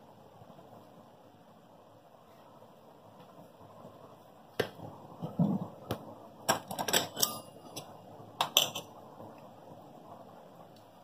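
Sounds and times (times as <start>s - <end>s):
metal plate taps and clinks: 6.5s - 8.9s.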